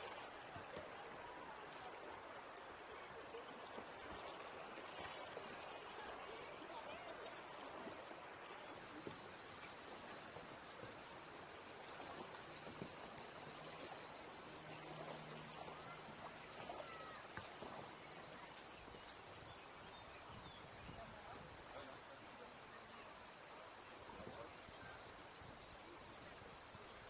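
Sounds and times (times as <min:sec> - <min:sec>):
moving water: 0:00.0 - 0:27.0
cicadas chirring: 0:08.8 - 0:27.0.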